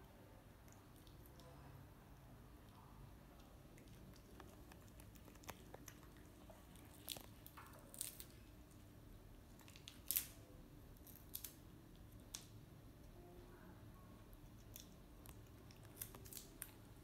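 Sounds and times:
monkey chewing and crunching: 3.4 - 8.5, 14.4 - 17.0.

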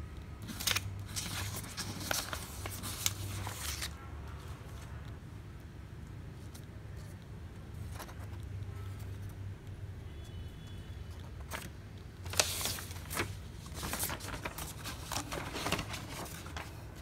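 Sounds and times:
low steady hum: 0.0 - 17.0
paper rustling: 0.4 - 4.0, 11.2 - 17.0.

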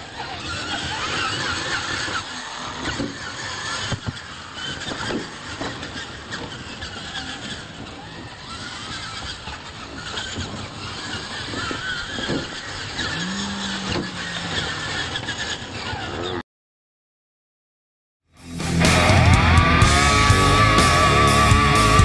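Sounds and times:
rc truck motors whining: 0.0 - 16.4.

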